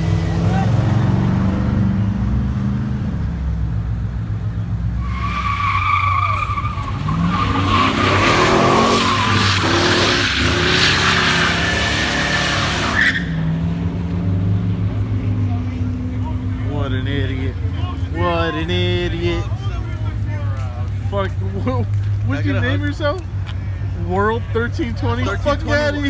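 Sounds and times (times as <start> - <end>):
car engine revving: 0.0 - 26.0
tyres squealing: 5.0 - 13.5.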